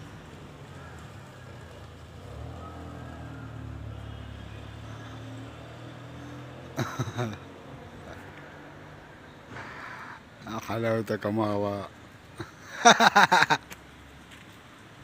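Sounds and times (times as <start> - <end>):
engine hum: 0.0 - 10.8.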